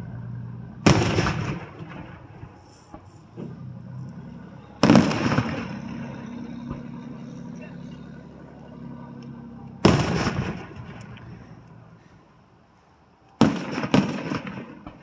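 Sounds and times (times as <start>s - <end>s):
firework shells bursting: 0.8s - 3.4s, 4.8s - 6.1s, 13.4s - 15.0s.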